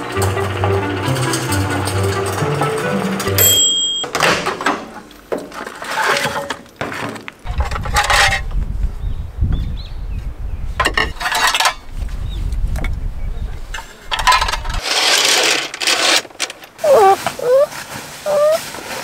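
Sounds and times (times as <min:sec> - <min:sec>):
wind on microphone: 0:07.5 - 0:14.8.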